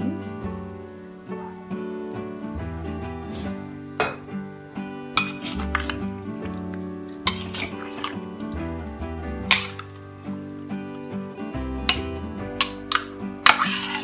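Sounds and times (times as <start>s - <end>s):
acoustic guitar music: 0.0s - 14.0s
ladle clinking and scraping pot: 5.2s - 6.0s, 7.1s - 8.2s, 9.5s - 9.9s, 11.9s - 14.0s.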